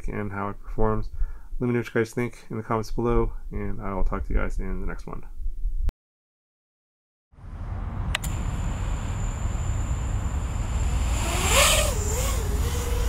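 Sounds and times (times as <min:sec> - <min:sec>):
steady hum and hiss: 0:07.5 - 0:13.0
drone motors whining: 0:07.6 - 0:13.0
click: 0:08.1 - 0:08.4.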